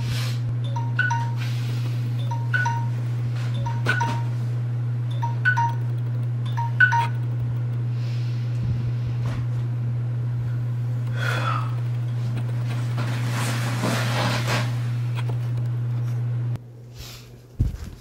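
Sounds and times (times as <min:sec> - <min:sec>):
phone alarm chime melody: 0:00.6 - 0:01.6, 0:02.2 - 0:04.5, 0:05.1 - 0:05.8, 0:06.5 - 0:07.2.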